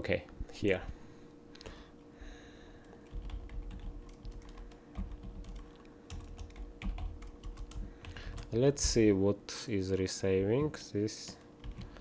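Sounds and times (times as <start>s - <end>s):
computer keyboard typing: 2.8s - 8.6s, 10.5s - 12.0s.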